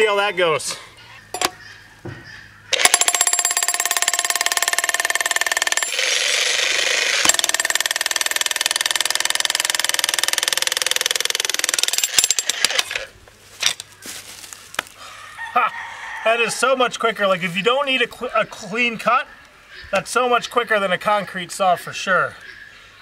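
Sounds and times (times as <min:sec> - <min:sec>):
demolition hammer chiselling stone: 0:02.8 - 0:06.0, 0:07.2 - 0:12.8.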